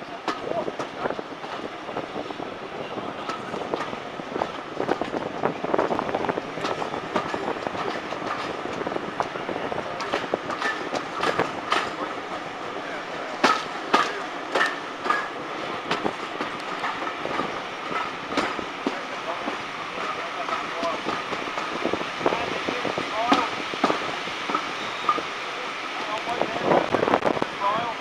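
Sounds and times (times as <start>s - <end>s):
train rolling rumble: 0.0s - 28.0s
wheels clacking over rail joints: 0.0s - 28.0s
wheel squeals: 24.6s - 25.3s.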